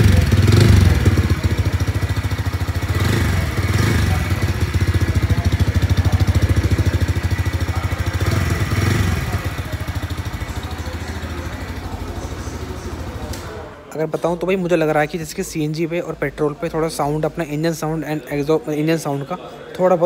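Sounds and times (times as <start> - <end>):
motorcycle engine idling: 0.0 - 13.9.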